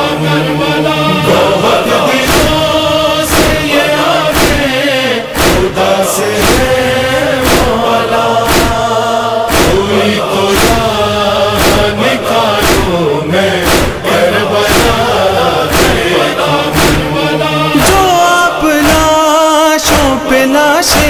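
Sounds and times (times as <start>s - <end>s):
male chorus chanting: 0.0s - 21.0s
rhythmic chest-beating thumps: 0.0s - 21.0s.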